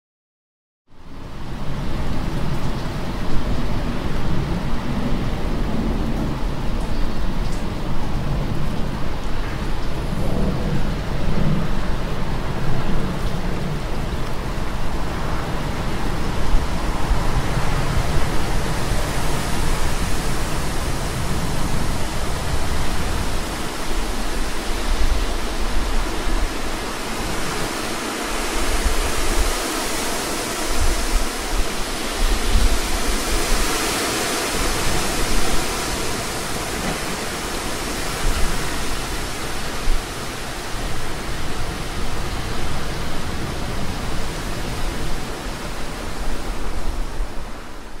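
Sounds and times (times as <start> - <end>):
wind rustling trees: 0.9 - 48.0.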